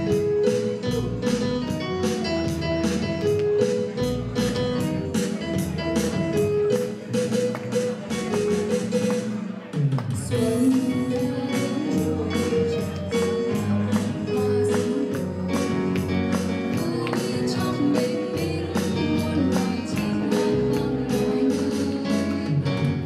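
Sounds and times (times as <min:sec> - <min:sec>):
keyboard: 0:00.0 - 0:23.0
woman singing: 0:10.1 - 0:23.0.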